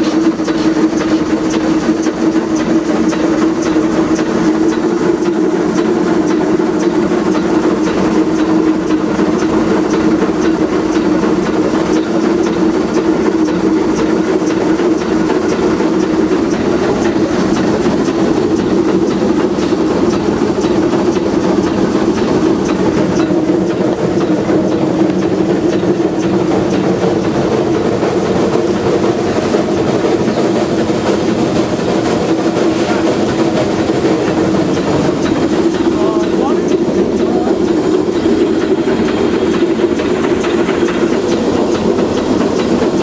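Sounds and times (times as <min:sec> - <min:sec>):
steam locomotive drone: 0:00.0 - 0:43.0.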